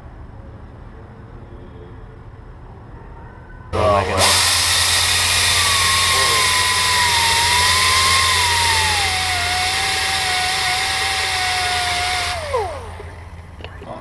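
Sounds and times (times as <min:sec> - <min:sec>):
air hissing: 0:03.8 - 0:13.4
pneumatic drill whining: 0:03.8 - 0:13.5.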